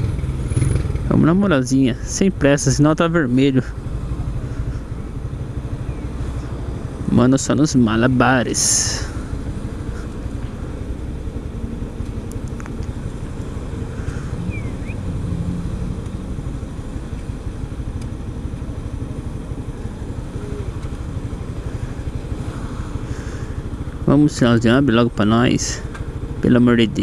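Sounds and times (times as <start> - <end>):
motorcycle engine idling: 0.0 - 27.0.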